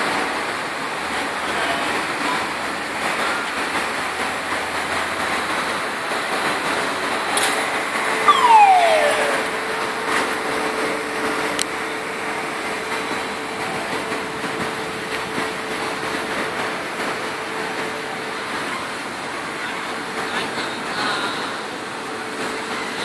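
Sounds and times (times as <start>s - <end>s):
terminal machinery noise: 5.2s - 20.9s.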